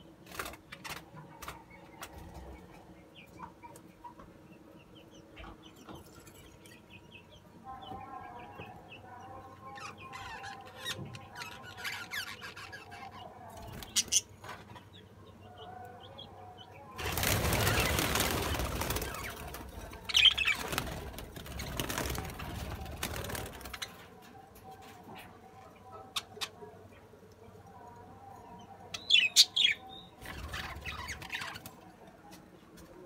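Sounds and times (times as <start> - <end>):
wings flapping: 17.0 - 24.0.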